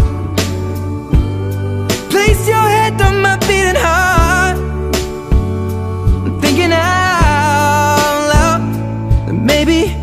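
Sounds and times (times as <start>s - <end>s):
pop song with singer: 0.0s - 10.0s.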